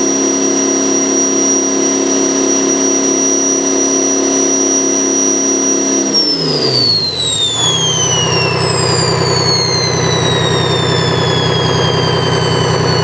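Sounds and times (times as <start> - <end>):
turbo whine: 0.0 - 13.0
diesel engine running: 6.1 - 13.0.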